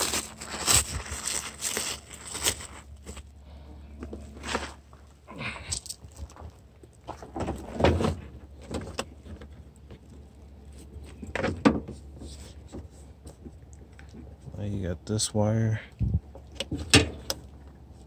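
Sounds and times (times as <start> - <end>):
bubble wrap rustling: 0.0 - 3.4.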